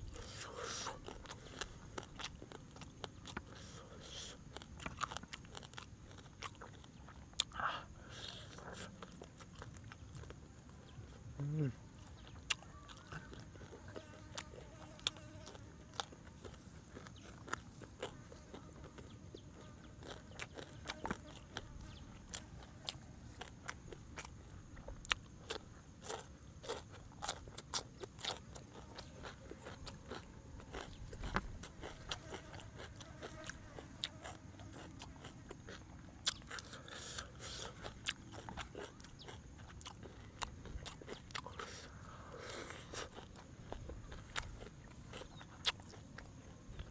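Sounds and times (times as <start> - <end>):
crunchy chewing: 0.0 - 46.9
faint high insect drone: 0.0 - 46.9.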